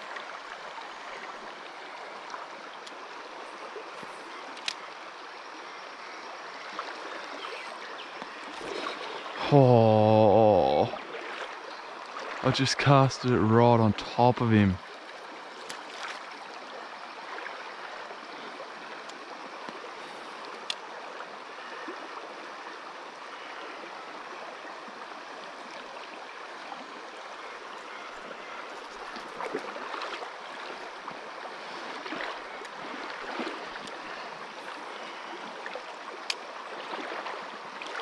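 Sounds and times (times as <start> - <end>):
faint clicks: 4.5 - 4.9, 20.4 - 20.8, 36.2 - 36.4.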